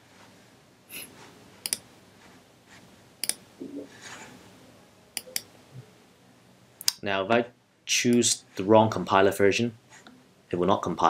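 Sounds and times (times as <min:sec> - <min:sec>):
computer mouse clicks: 0:01.6 - 0:01.8, 0:03.2 - 0:03.4, 0:05.2 - 0:05.5.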